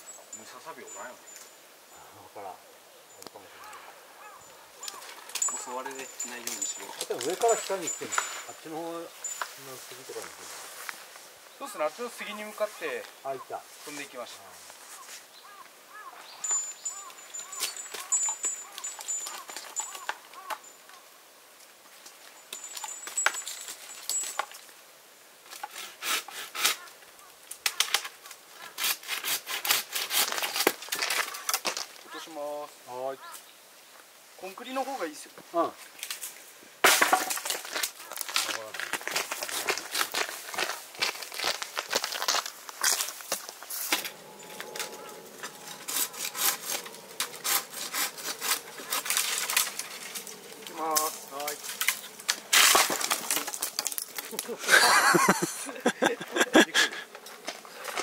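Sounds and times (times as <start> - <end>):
rustling and crackling of branches: 0.0 - 58.0
faint high chirping: 14.9 - 21.3, 43.6 - 52.5
hand saw cutting wood: 25.7 - 26.8, 28.7 - 30.8, 45.7 - 50.0.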